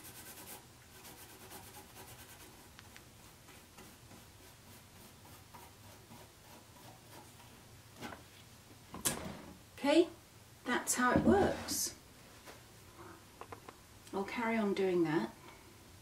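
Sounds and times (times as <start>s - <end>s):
paintbrush scratching across stencil: 0.0s - 7.6s.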